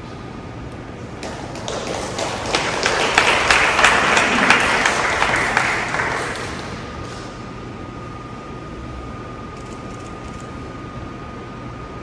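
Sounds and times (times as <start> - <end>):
audience applauding: 1.2 - 6.9.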